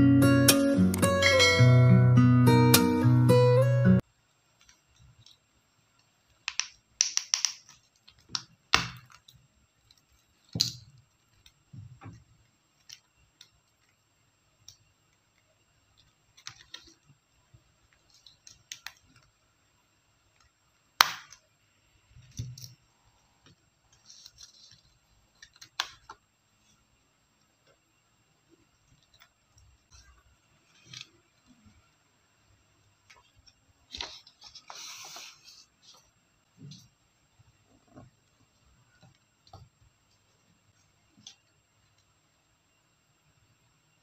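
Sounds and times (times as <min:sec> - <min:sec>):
paper rustling: 0:24.0 - 0:25.6.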